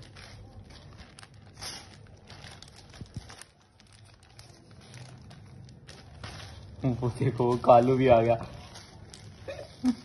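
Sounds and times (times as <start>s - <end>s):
plastic bag rustling: 0.0s - 10.0s.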